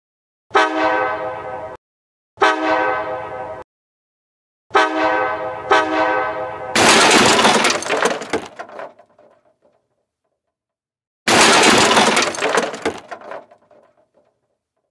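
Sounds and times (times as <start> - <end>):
train horn blasts: 0.5 - 1.8, 2.4 - 3.6, 4.7 - 6.8
loud crash of smashing: 6.8 - 9.3, 11.3 - 13.9.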